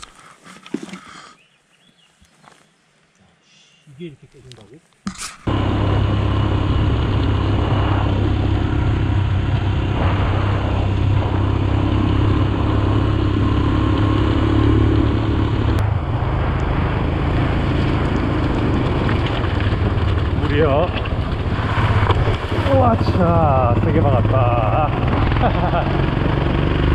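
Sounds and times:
motorcycle engine running: 5.5 - 26.9.

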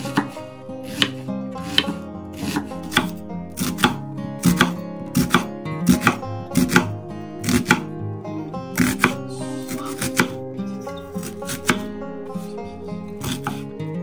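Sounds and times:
knife chopping on wooden board: 0.0 - 7.9, 8.8 - 10.4, 11.2 - 11.9, 13.2 - 13.7
plucked guitar background music: 0.0 - 14.0.

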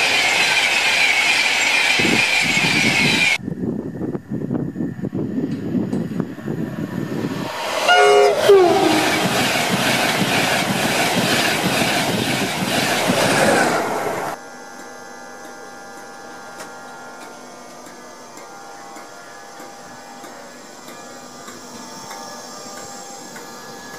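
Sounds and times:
train humming with faint whine: 0.0 - 23.9
train passing at speed: 4.8 - 14.4
train horn: 7.8 - 9.6.

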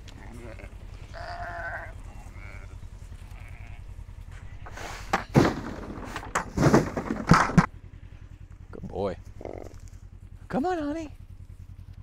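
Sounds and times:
faint sheep bleats: 0.0 - 4.9.

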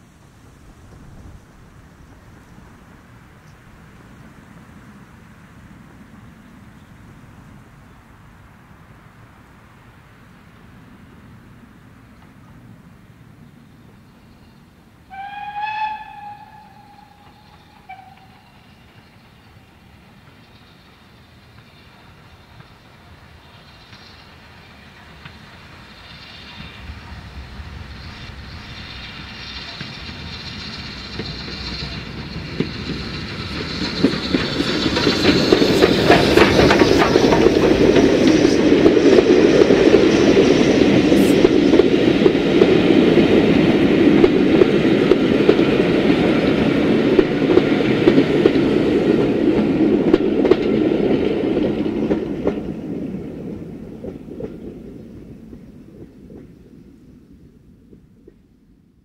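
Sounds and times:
steam locomotive passing: 0.0 - 59.0
wheels clattering over rail joints: 28.8 - 40.6.

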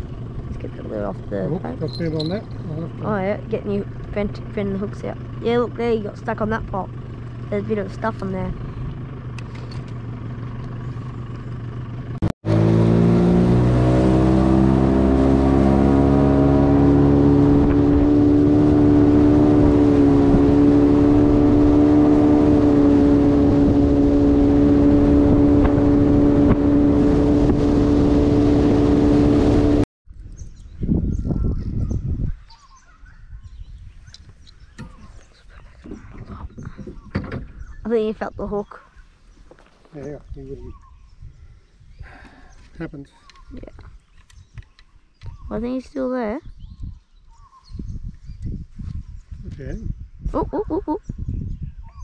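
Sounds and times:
outboard motor speeding up: 0.0 - 29.9.

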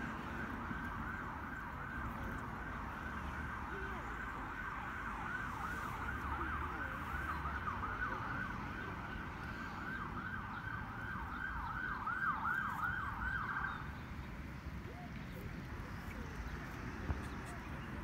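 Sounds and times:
siren yelping: 9.8 - 13.8.

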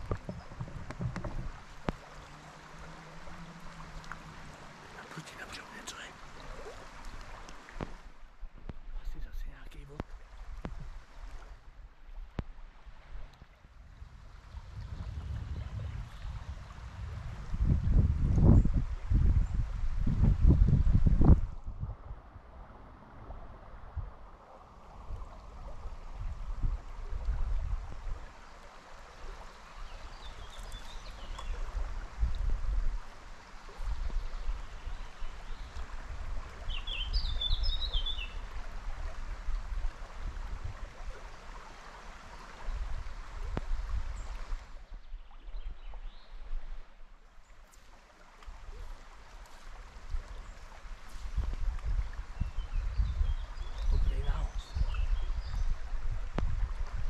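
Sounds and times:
stream water running: 0.0 - 57.0
low microphone rumbles: 13.9 - 24.2.

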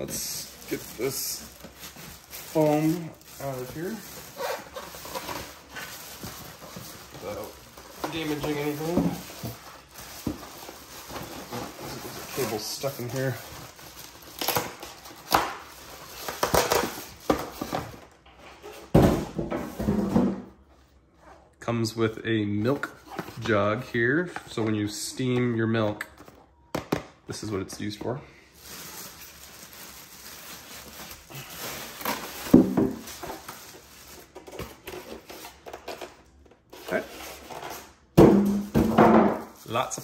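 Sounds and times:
plastic bag rustling: 0.0 - 18.0, 28.4 - 35.7, 38.7 - 40.0.

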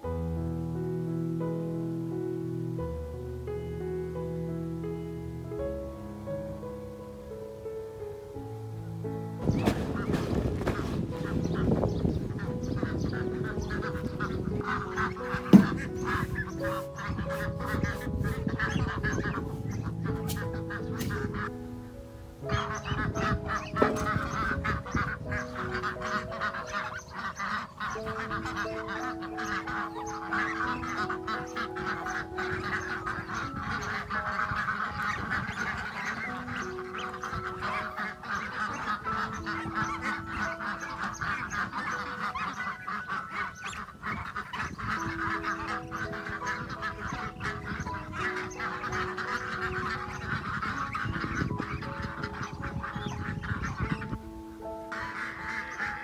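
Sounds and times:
slow instrumental music: 0.0 - 56.0
fowl calling: 9.4 - 56.0
hands rustling dry bran: 20.2 - 21.4.

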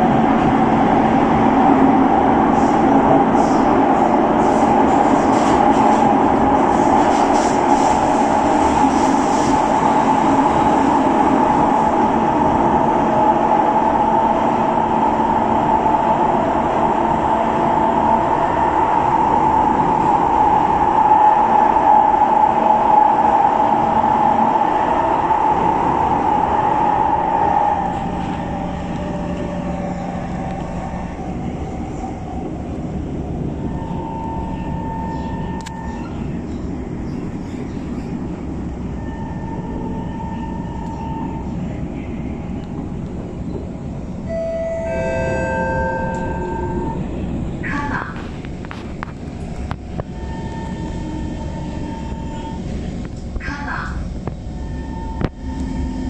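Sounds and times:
train wheels rumbling on rail: 0.0 - 56.0
steady whine of tones: 54.2 - 56.0.

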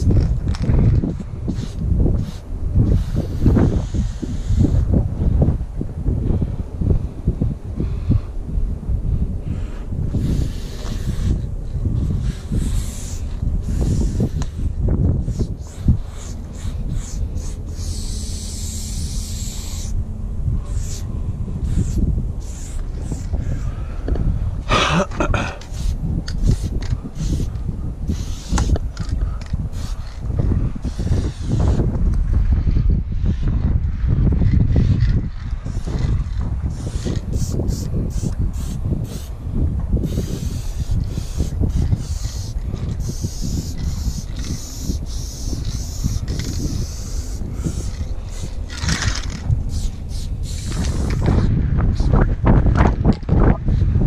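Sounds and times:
wind rumble on microphone: 0.0 - 54.0
spray paint can hissing: 1.5 - 4.9, 10.1 - 20.0, 20.7 - 23.8, 25.3 - 31.8, 35.7 - 39.4, 40.0 - 52.2.

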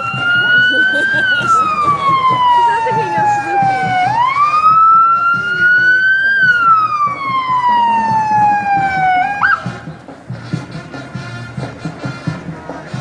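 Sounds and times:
emergency siren wailing: 0.0 - 9.9.

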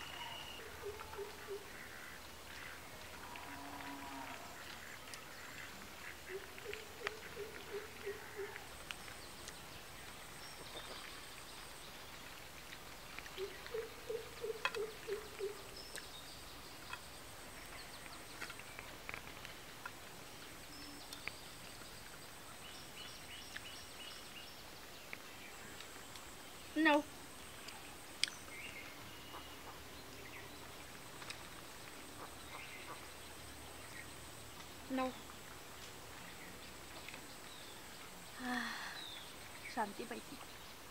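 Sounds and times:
faint bird chirps: 0.0 - 4.6.

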